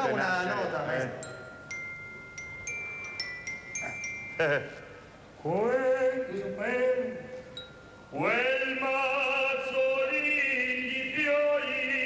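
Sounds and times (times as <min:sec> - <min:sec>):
bell-like notes: 0:01.0 - 0:05.1
voice singing a held tone: 0:08.1 - 0:12.0.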